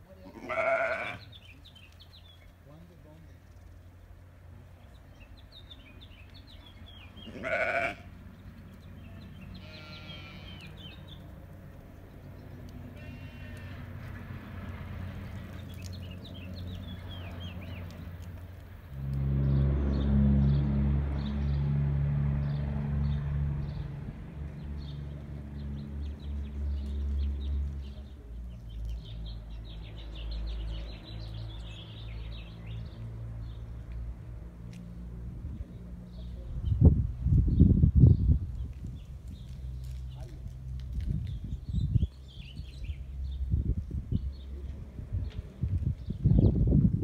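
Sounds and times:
small birds chirping: 0:00.1 - 0:14.2, 0:14.8 - 0:18.8, 0:24.6 - 0:34.1, 0:35.6 - 0:46.6
vehicle engine humming: 0:01.6 - 0:36.5.

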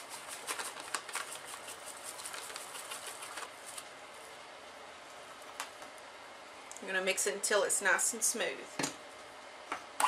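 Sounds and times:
plastic bag crinkling: 0:00.2 - 0:03.9.

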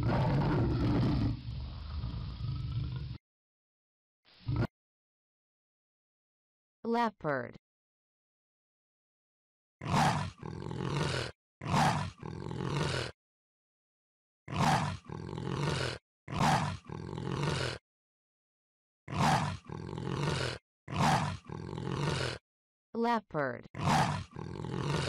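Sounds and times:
leopard roaring calls: 0:00.0 - 0:03.2, 0:23.8 - 0:25.0.

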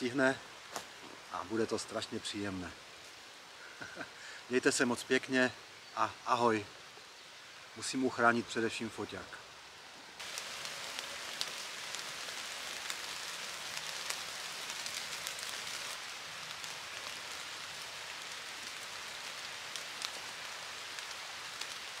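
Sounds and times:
rain hissing on leaves: 0:00.0 - 0:22.0
raindrop ticks: 0:10.2 - 0:22.0.

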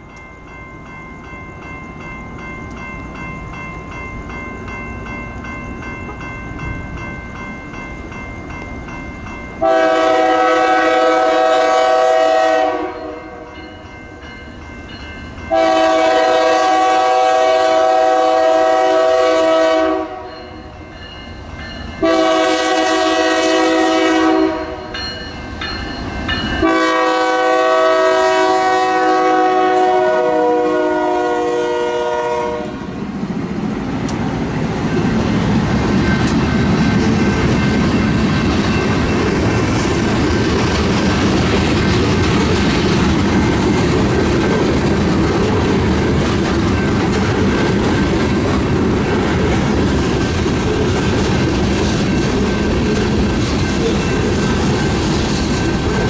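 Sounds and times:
locomotive air horn chord: 0:09.6 - 0:13.5, 0:15.5 - 0:20.3, 0:22.0 - 0:24.8, 0:26.6 - 0:32.8
freight cars rumbling with wheel clatter: 0:33.0 - 0:56.0.

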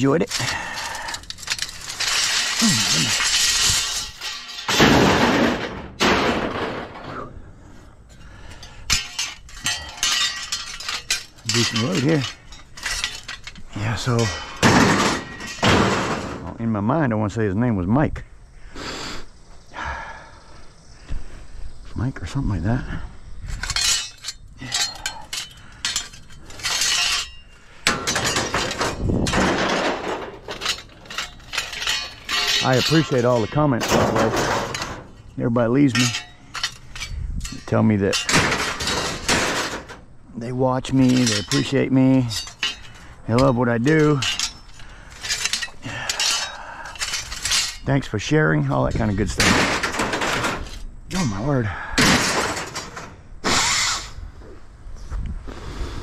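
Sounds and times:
metal clinking on metal: 0:00.0 - 0:05.7, 0:08.1 - 0:16.2, 0:23.5 - 0:40.1, 0:40.8 - 0:53.1
scrap metal clattering: 0:00.0 - 0:16.7, 0:23.4 - 0:54.2
metal rattling: 0:00.0 - 0:16.8, 0:23.4 - 0:54.2.

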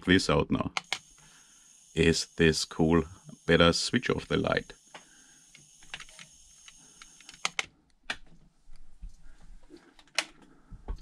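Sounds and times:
sharp clicks and knocks of handling: 0:09.8 - 0:11.0.

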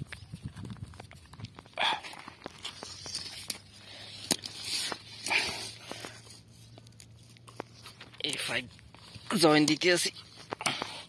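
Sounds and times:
footsteps on gravelly ground: 0:00.0 - 0:04.1
scraping crunches: 0:00.0 - 0:11.0.

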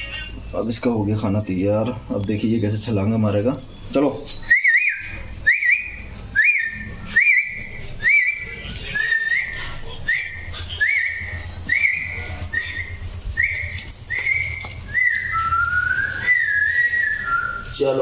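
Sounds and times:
puppy whining: 0:03.7 - 0:17.8.

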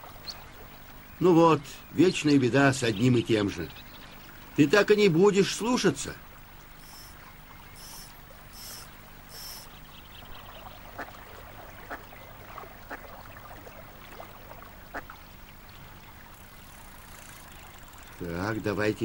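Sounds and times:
river water flowing: 0:00.0 - 0:19.0
short high-pitched sounds: 0:06.8 - 0:07.2, 0:07.8 - 0:09.7.

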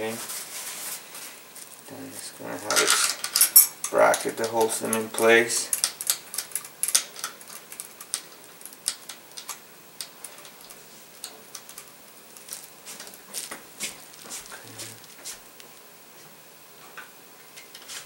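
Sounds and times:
small parts clicking and tapping: 0:02.7 - 0:14.3.

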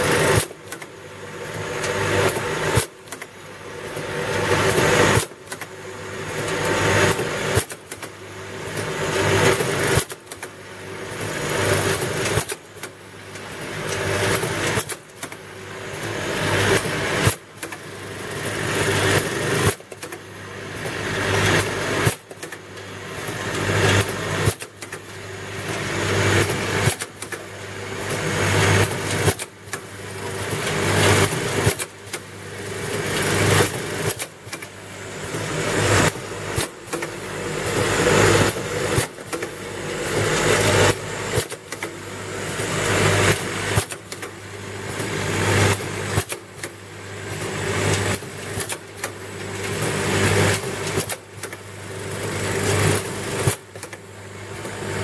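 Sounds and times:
filling machine mechanical cycle: 0:00.0 - 0:55.0.

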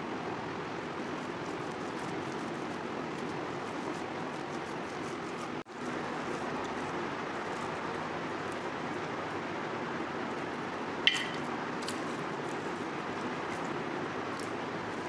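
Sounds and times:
metallic clink on steel plate: 0:11.1 - 0:11.4.

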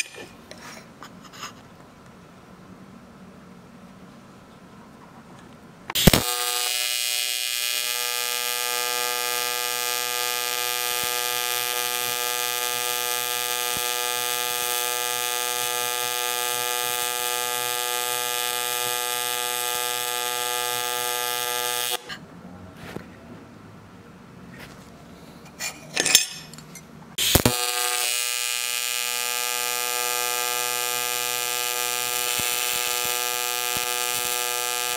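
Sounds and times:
welding arc striking crack: 0:05.9 - 0:22.1, 0:27.2 - 0:34.9
welding arc buzzing and hissing: 0:06.0 - 0:22.1, 0:27.2 - 0:34.9.

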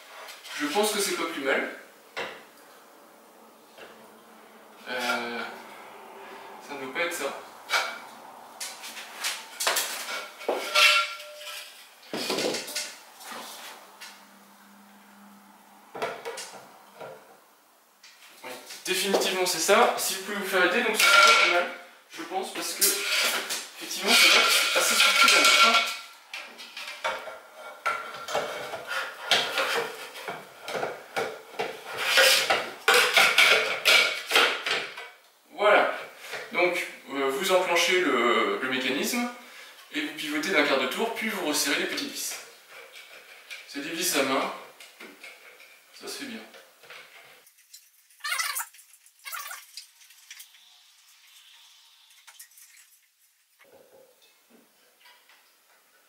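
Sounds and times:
glass bowl scraping against fixture: 0:09.8 - 0:11.9, 0:22.8 - 0:26.1.

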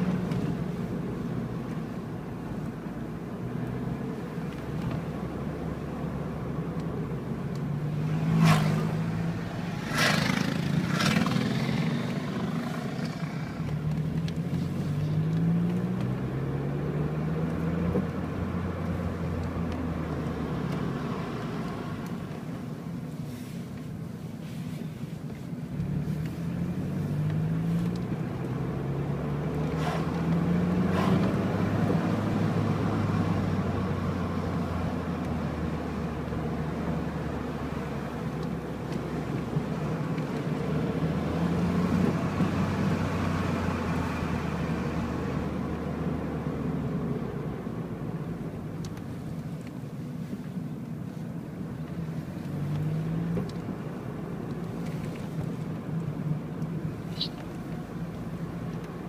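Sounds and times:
car engine accelerating: 0:00.0 - 0:23.6, 0:25.6 - 0:59.0.

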